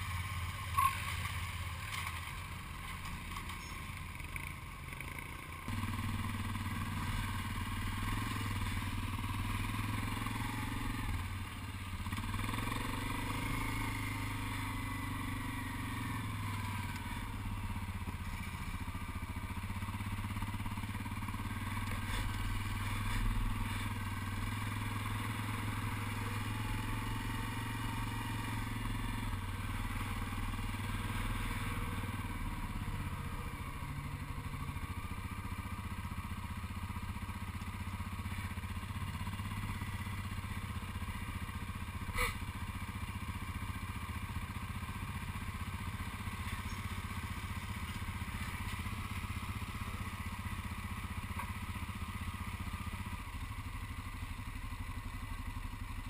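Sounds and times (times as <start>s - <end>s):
quad bike engine revving: 4.3s - 18.9s, 19.7s - 35.2s, 41.9s - 42.8s.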